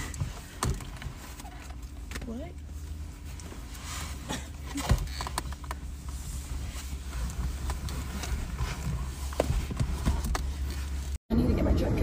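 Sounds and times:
rustling: 0.0s - 11.2s
car engine rumble: 0.0s - 12.0s.

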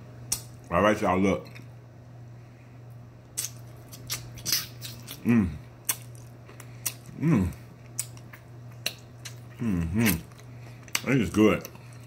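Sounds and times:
person chewing and crunching: 3.3s - 12.0s
person humming mm: 5.2s - 5.7s, 7.1s - 7.6s, 9.6s - 10.2s.

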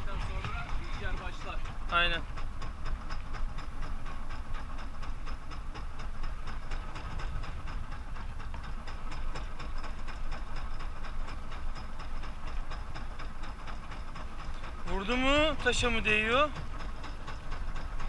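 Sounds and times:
boat engine rumbling: 0.0s - 18.0s
water noise: 0.0s - 18.0s
wind: 0.0s - 18.0s.

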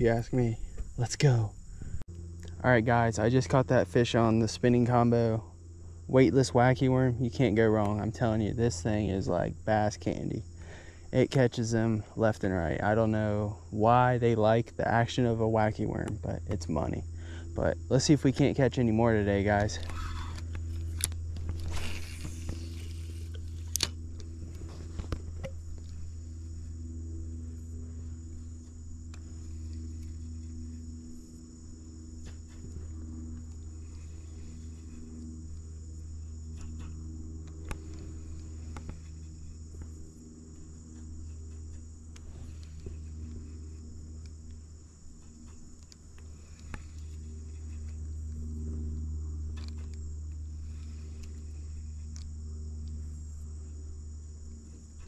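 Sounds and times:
insects chorus: 0.0s - 55.0s
fishing line swishing out: 20.9s - 24.0s.

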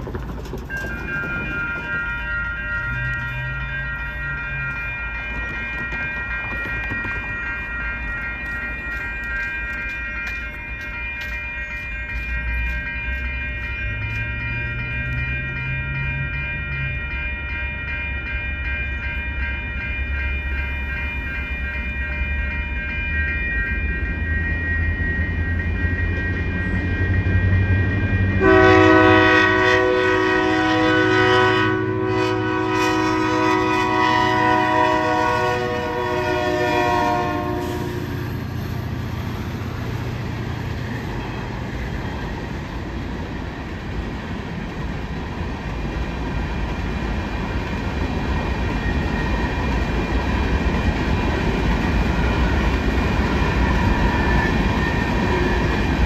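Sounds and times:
freight cars rumbling and clacking: 0.0s - 28.4s, 38.2s - 56.0s
locomotive rumble: 0.0s - 56.0s
railroad crossing bells: 0.0s - 56.0s
train horn: 28.4s - 38.3s, 54.9s - 55.8s.

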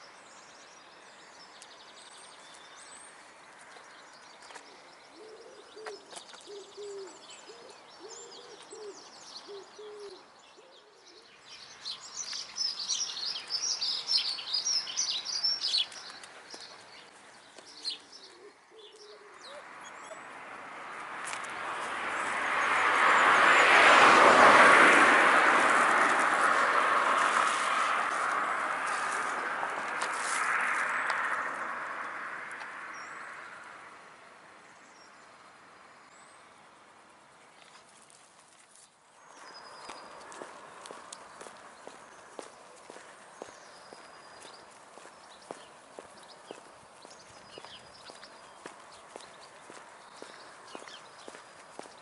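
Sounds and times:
songbird twittering: 3.8s - 20.3s, 39.2s - 52.0s
pigeon cooing: 5.2s - 11.2s, 17.9s - 20.2s.

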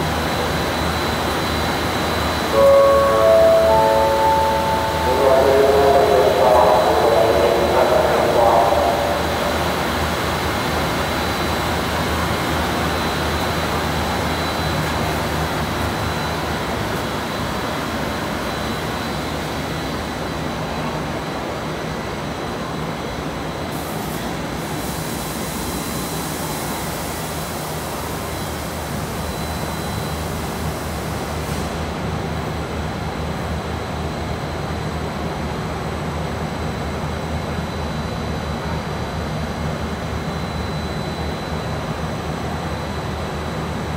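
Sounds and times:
thin high machine whine: 1.6s - 10.6s.

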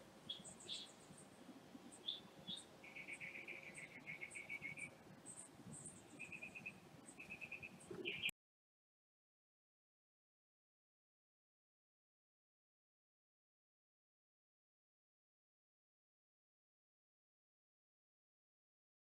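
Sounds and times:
faint high chirps: 0.0s - 8.3s.

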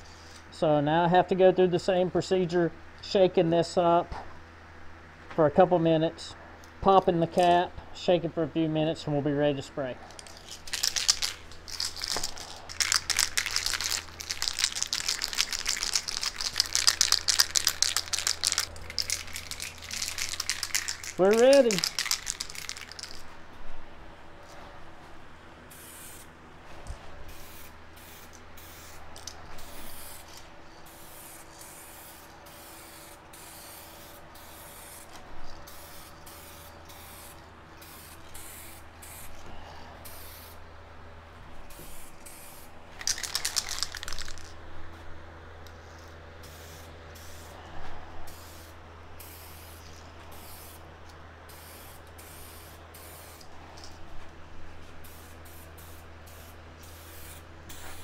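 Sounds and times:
aerosol can spraying: 10.3s - 23.2s, 27.3s - 39.4s, 41.7s - 44.5s, 51.5s - 53.5s, 55.1s - 58.0s.

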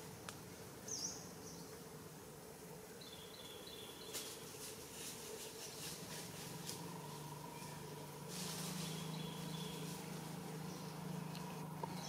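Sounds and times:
low insect-like hum: 0.0s - 12.0s
light rustling crackles: 4.0s - 12.0s.

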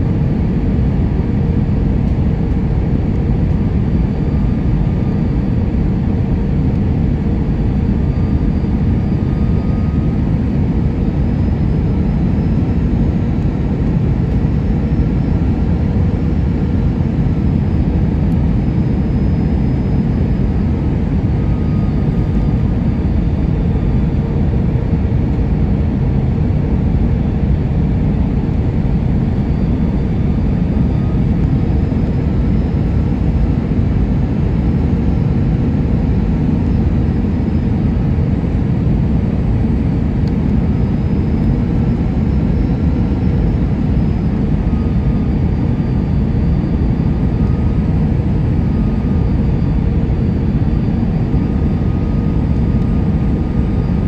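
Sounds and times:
aircraft cabin engine rush: 0.0s - 54.0s
faint whining tones: 2.1s - 26.0s.

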